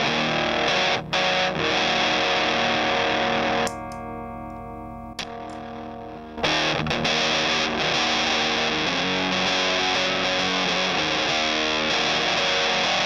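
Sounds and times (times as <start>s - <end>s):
fuzzed electric guitar chords: 0.0s - 13.0s
brief click: 3.6s - 4.6s.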